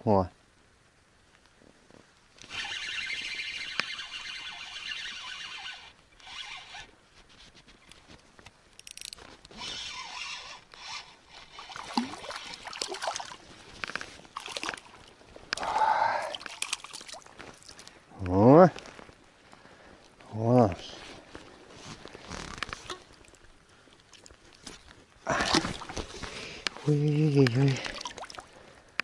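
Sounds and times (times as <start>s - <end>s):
fishing reel whirring: 2.4s - 6.9s, 9.5s - 12.7s
fish splashing: 10.9s - 17.8s, 25.3s - 26.6s, 27.7s - 28.6s.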